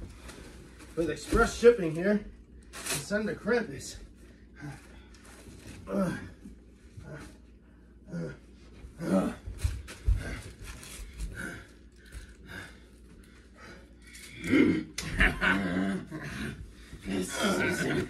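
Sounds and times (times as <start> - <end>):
men grunting and breathing heavily: 4.4 - 18.0.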